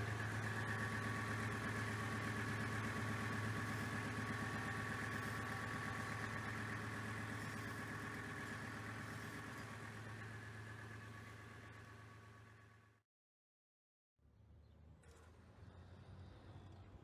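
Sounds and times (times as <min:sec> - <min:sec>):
tractor diesel engine idling: 0:00.0 - 0:13.0.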